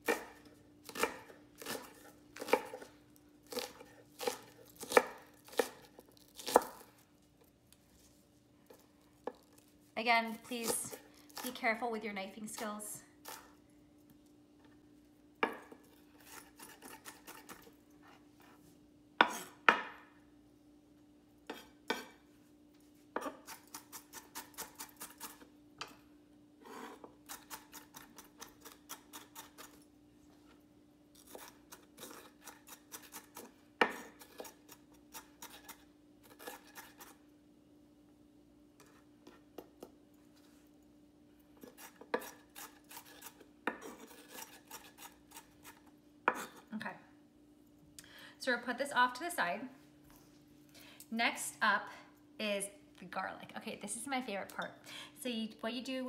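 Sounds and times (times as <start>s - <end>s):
knife chopping on wooden board: 3.5s - 6.8s, 19.2s - 20.0s.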